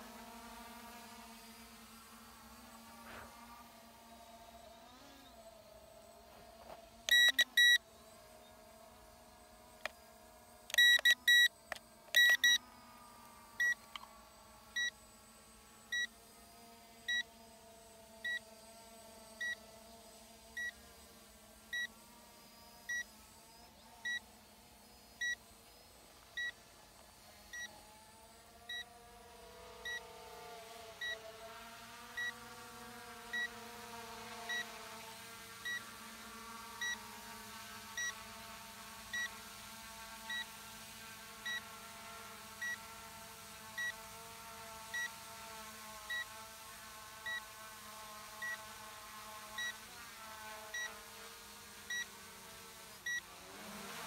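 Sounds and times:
drone motors whining: 0:00.0 - 0:54.0
controller high beeps: 0:07.1 - 0:07.8, 0:10.7 - 0:11.5, 0:12.2 - 0:12.6.

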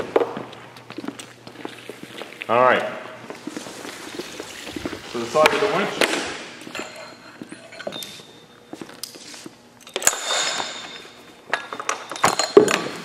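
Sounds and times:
knocks and rattles of net hardware: 0:09.9 - 0:13.0.

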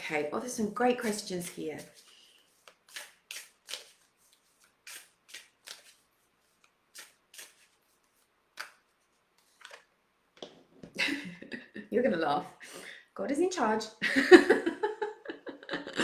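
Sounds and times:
cards being shuffled: 0:01.0 - 0:10.6.

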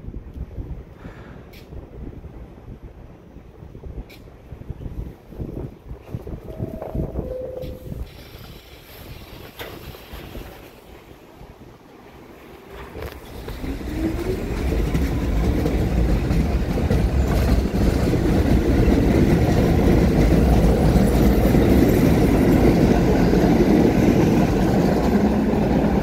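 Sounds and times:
train wheels rumbling on rails: 0:00.0 - 0:26.0.

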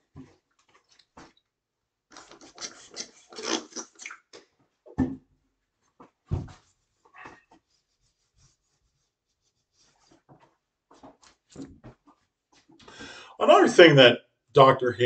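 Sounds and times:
dull thumps: 0:06.3 - 0:06.7
eraser scrubbing whiteboard: 0:06.8 - 0:10.5.

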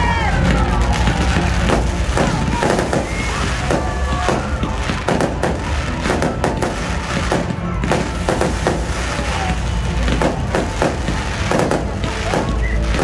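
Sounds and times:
fireworks cracking and banging: 0:00.0 - 0:13.0.

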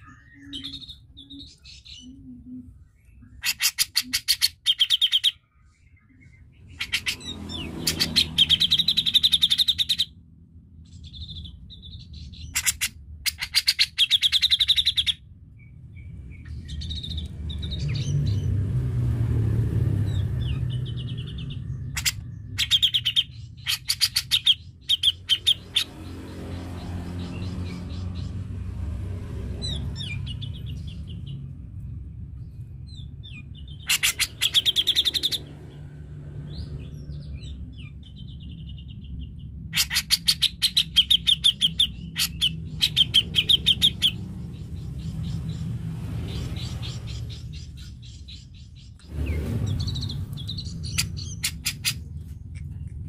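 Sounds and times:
bird singing stuttering notes: 0:00.0 - 0:10.2, 0:20.0 - 0:28.4, 0:32.4 - 0:52.9
low rumble: 0:25.6 - 0:39.8, 0:41.8 - 0:53.0.

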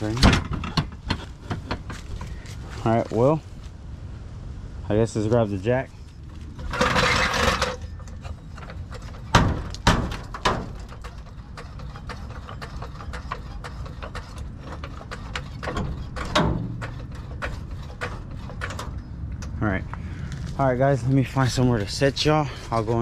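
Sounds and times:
rustle: 0:00.0 - 0:23.0
sharp knocks: 0:09.0 - 0:11.1.

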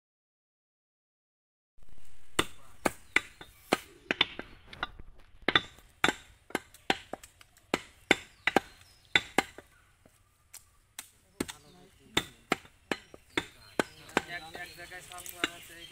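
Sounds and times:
cleaver chopping meat on wood: 0:05.5 - 0:09.7, 0:11.4 - 0:14.4.

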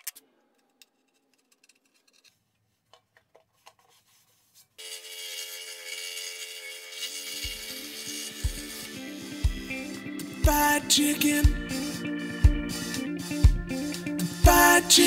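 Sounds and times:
background music with low beat: 0:08.4 - 0:15.0.

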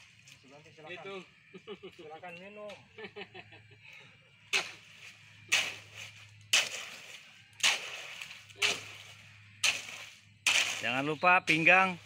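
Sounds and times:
hoe chopping concrete mix: 0:04.5 - 0:12.0.

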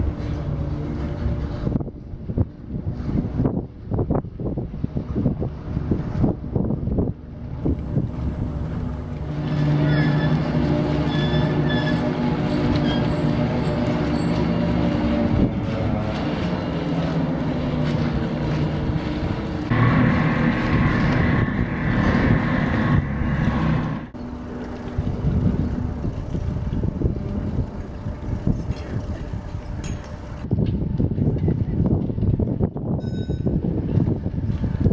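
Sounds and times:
bridge machinery humming and grinding: 0:00.0 - 0:34.9.

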